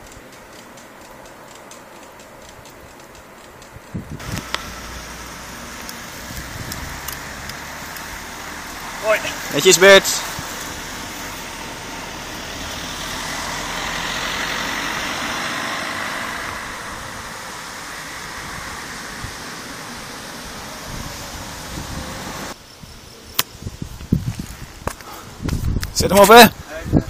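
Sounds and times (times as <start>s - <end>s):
sharp clicks: 0.0s - 4.7s, 5.8s - 8.1s
motor vehicle passing: 0.1s - 22.6s.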